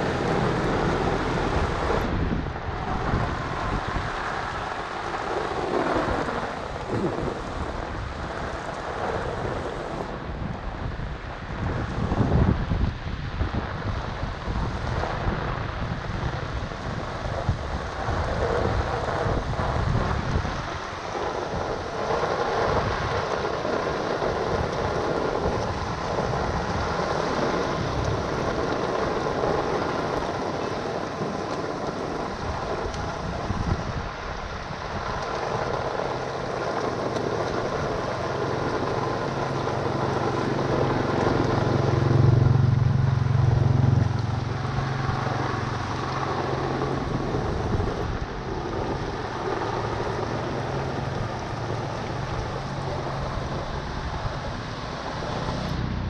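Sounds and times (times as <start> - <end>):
rain on a wet street: 0.0 - 56.0
wind buffeting the microphone: 0.0 - 56.0
water flowing into a drain: 17.5 - 48.1.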